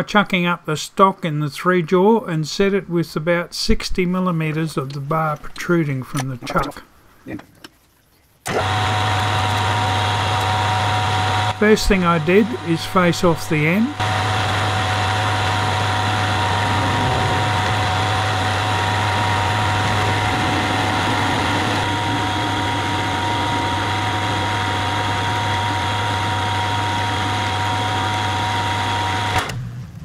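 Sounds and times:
metal lathe humming with whines: 0:08.5 - 0:29.5.

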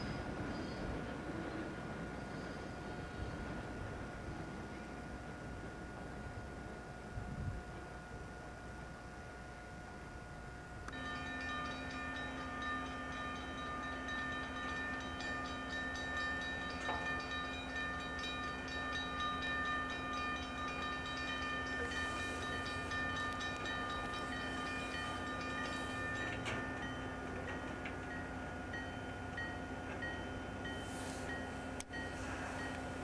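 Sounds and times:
diesel locomotive rumble: 0:09.9 - 0:33.0
crossing bell ringing: 0:10.9 - 0:33.0.

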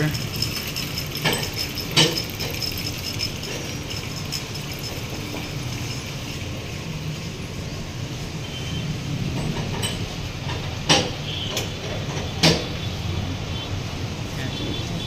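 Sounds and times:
metal tools clanking: 0:00.0 - 0:06.2, 0:09.3 - 0:12.7.

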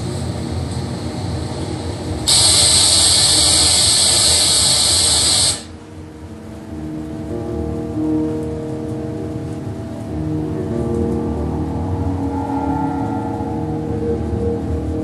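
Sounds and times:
low rumbling noise: 0:00.0 - 0:15.0
tv static hiss: 0:00.0 - 0:15.0.

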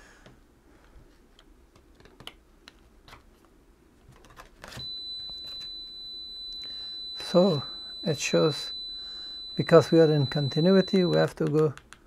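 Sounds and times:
high-pitched continuity beep: 0:04.8 - 0:11.3.

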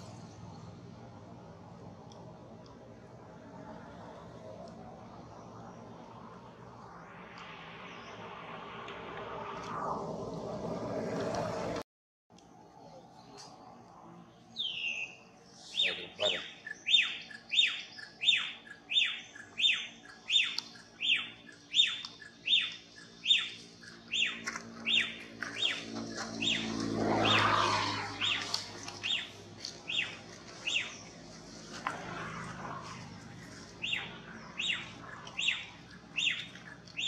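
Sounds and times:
bird calling sharp notes: 0:15.8 - 0:25.8.

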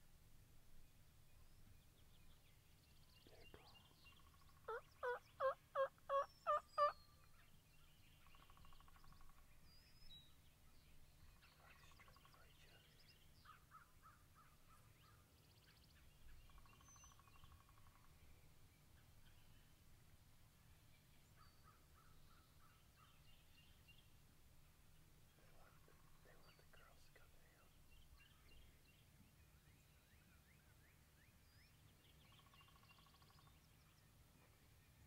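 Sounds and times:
turkey clucks and chatter: 0:04.6 - 0:07.0
loud turkey yelps: 0:04.7 - 0:06.9.

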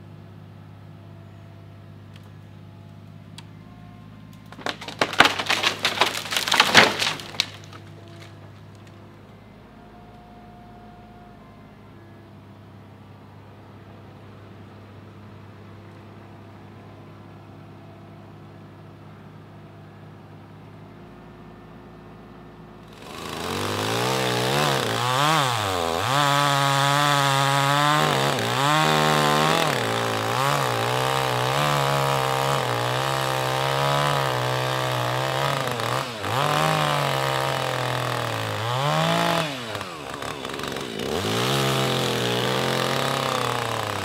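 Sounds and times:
chainsaw cutting log: 0:04.5 - 0:08.9, 0:22.9 - 0:44.0.

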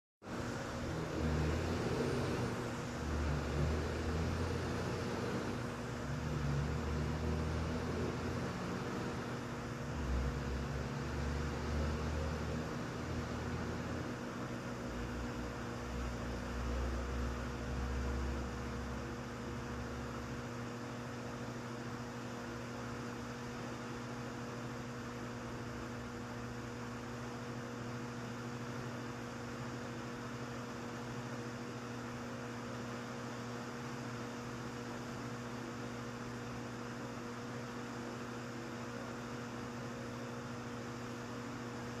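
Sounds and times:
electrical hum: 0:00.2 - 0:42.0.

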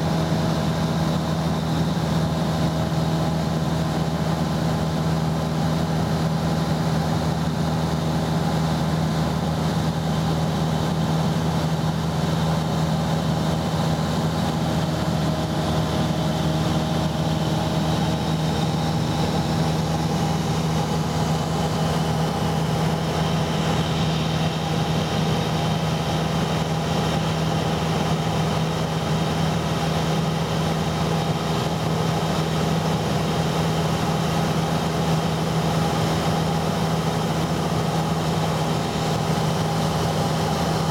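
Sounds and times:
light aircraft engine drone: 0:00.0 - 0:40.9.

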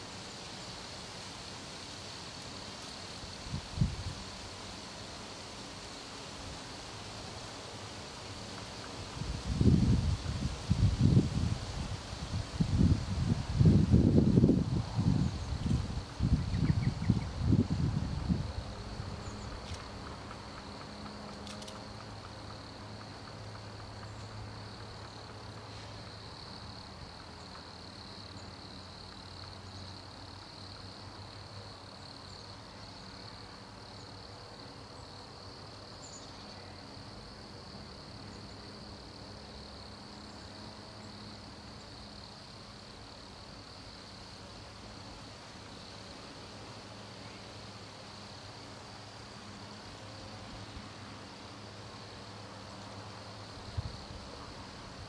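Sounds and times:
crickets trilling in chorus: 0:00.0 - 0:55.0.

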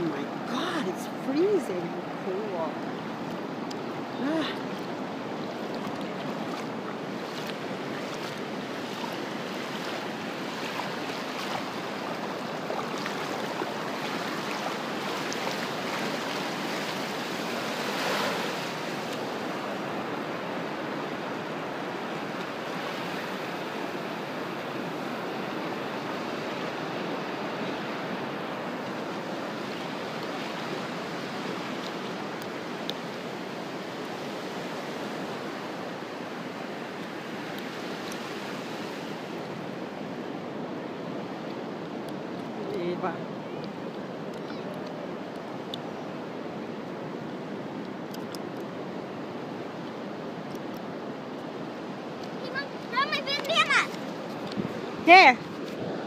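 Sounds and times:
ocean surf breaking: 0:00.0 - 0:56.0.

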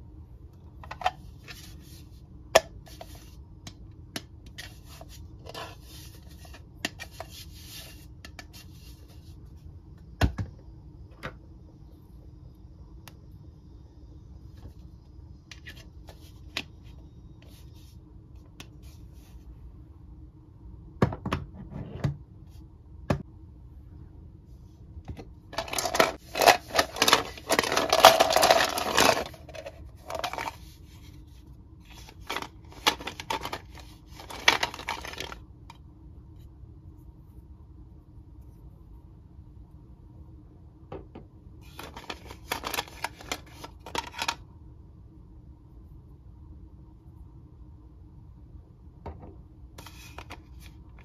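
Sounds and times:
plastic pieces rattling: 0:25.5 - 0:30.6, 0:32.2 - 0:35.4.

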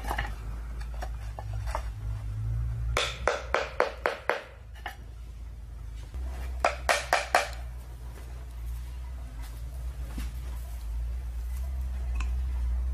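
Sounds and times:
sharp hard knocks: 0:03.0 - 0:04.6, 0:06.6 - 0:07.6.

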